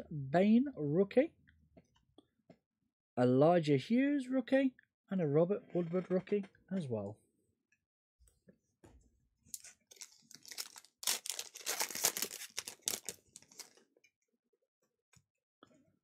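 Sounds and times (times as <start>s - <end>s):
card pack wrapper tearing: 9.6s - 13.8s.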